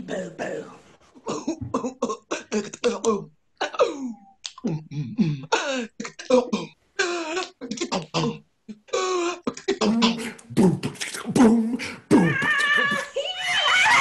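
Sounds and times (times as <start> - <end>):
woman beatboxing: 9.5 - 13.2.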